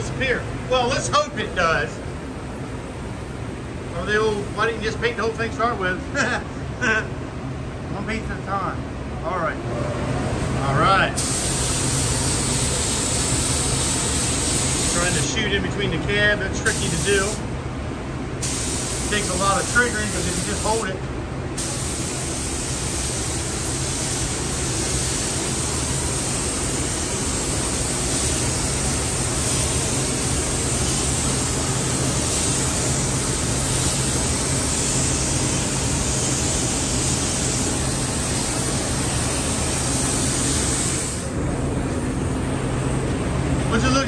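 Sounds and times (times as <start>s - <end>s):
paint spray gun hissing: 11.2s - 15.2s, 18.4s - 20.9s, 21.6s - 41.3s.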